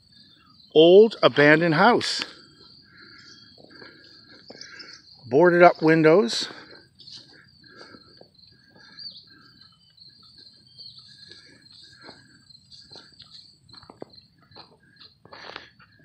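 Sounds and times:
crickets chirring: 0.0s - 16.0s
footsteps on grass: 10.8s - 15.7s.

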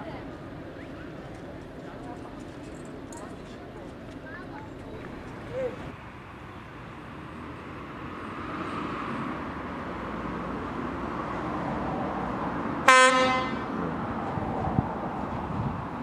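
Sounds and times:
train running noise: 0.3s - 8.0s
train horn blast: 12.8s - 13.8s.

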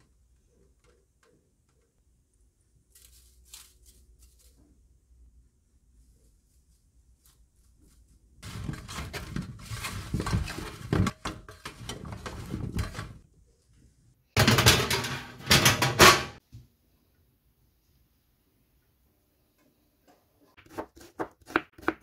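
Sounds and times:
cauliflower rustling on tray: 2.9s - 4.9s, 6.0s - 11.2s
baking tray scraping and clattering: 8.4s - 13.3s, 14.3s - 16.4s.

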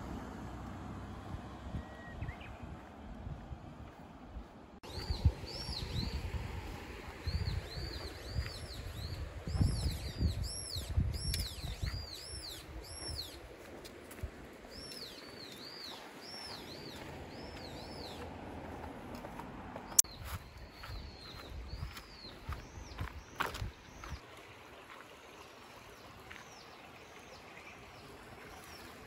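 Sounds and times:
songbird chirping: 1.4s - 3.0s, 7.2s - 24.3s.

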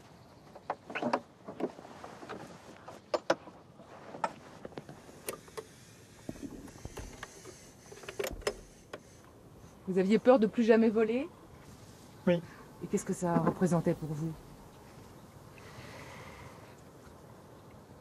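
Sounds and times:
hands handling engine fittings: 1.5s - 9.1s.

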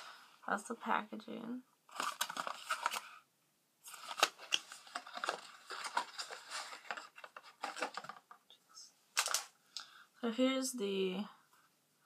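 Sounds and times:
cardboard box rustling and clicking: 3.9s - 8.4s.

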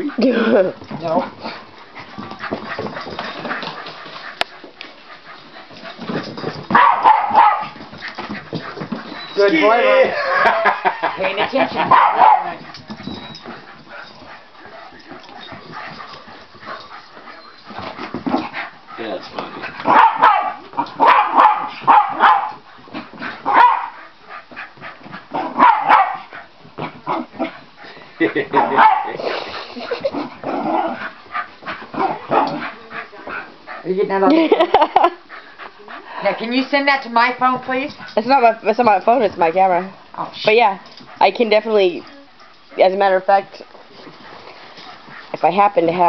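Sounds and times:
small dog barking and yipping: 6.7s - 7.8s, 11.8s - 13.4s, 19.9s - 22.6s, 23.4s - 24.0s, 25.3s - 26.3s, 28.5s - 29.2s.

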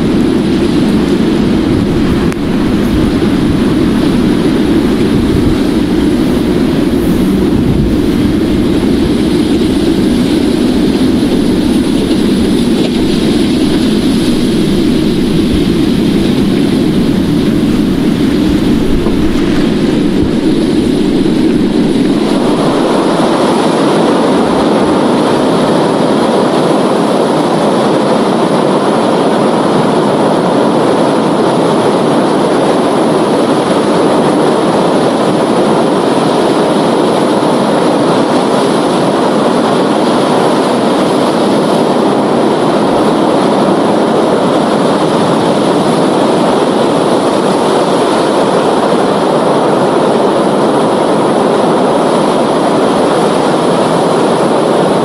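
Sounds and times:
ocean surf: 0.0s - 55.0s.

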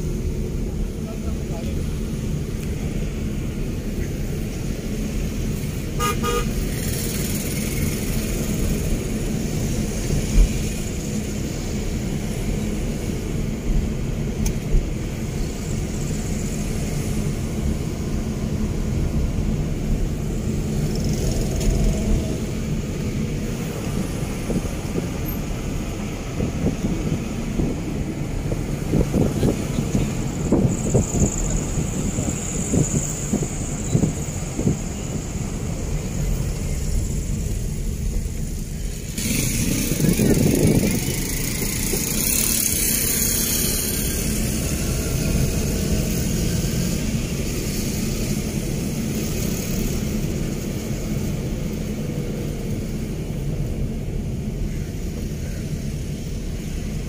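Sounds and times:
car road and engine noise: 0.0s - 57.0s
short car horn toot: 6.0s - 6.6s.

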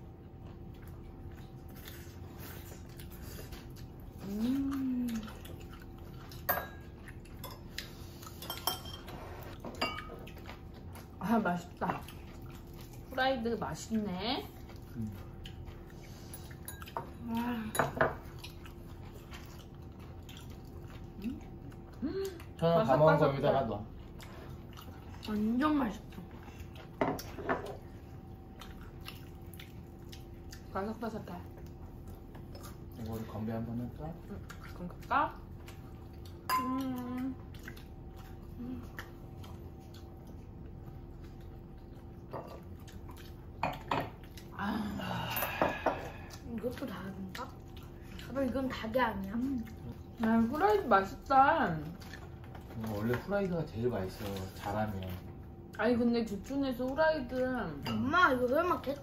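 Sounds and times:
tableware clinking on a table: 8.4s - 9.1s, 9.7s - 10.1s.

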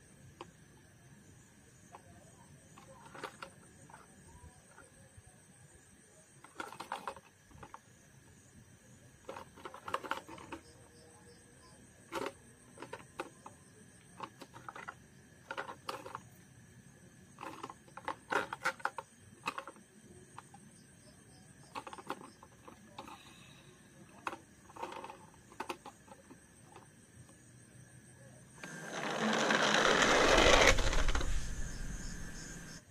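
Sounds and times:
plastic toy cars clicking and knocking: 1.9s - 5.0s, 6.3s - 8.4s, 9.2s - 16.4s, 17.3s - 27.4s, 28.6s - 31.6s.

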